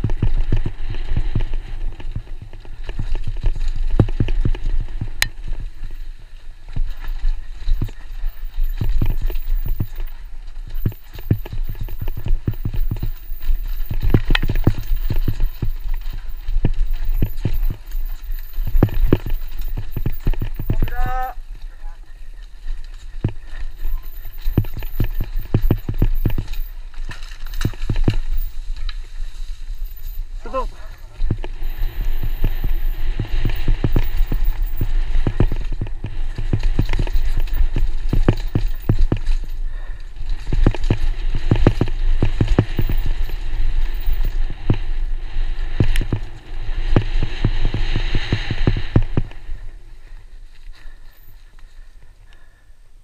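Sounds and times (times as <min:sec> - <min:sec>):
low rumble: 0:00.0 - 0:52.0
mountain bike clattering over trail: 0:00.0 - 0:52.6
rush of noise: 0:39.8 - 0:50.8.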